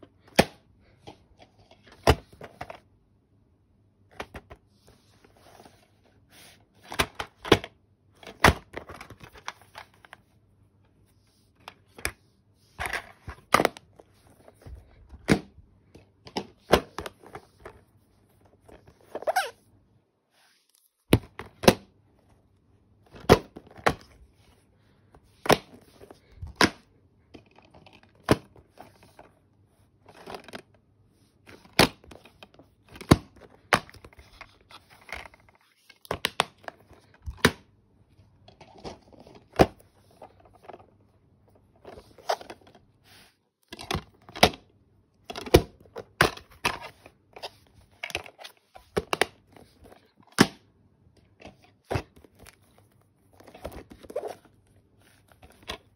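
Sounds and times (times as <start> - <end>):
plastic cases clicking and snapping: 31.5 - 37.7.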